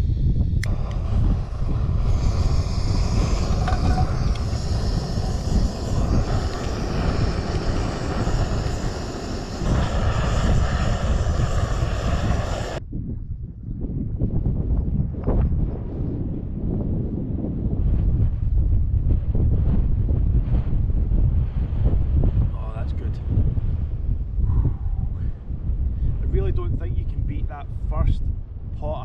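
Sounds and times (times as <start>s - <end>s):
camping stove burner hissing: 0.0s - 12.8s
wind buffeting microphone: 0.0s - 29.0s.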